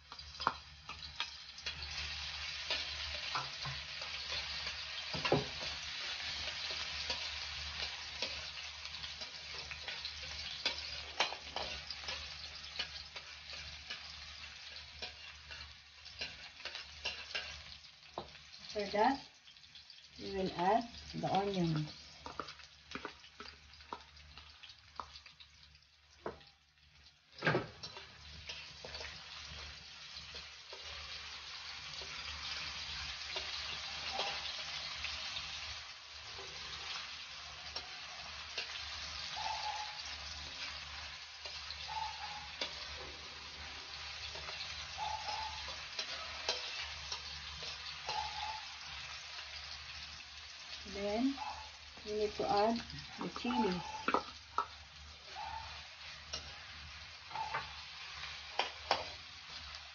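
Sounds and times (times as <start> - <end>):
onions sizzling in oil: 0.0 - 59.9
metal spatula scraping wok: 0.4 - 17.9, 27.7 - 41.9, 42.5 - 50.2, 52.3 - 59.6.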